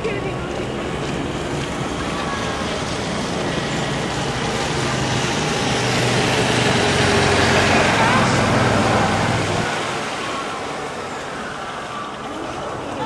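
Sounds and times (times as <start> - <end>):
city traffic engine hum: 0.0 - 13.0.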